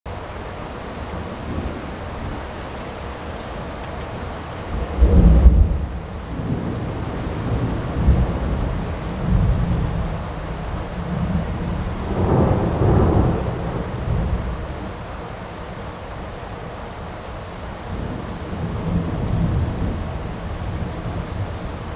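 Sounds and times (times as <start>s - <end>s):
thunder rumbling: 4.7s - 15.1s, 17.9s - 21.9s.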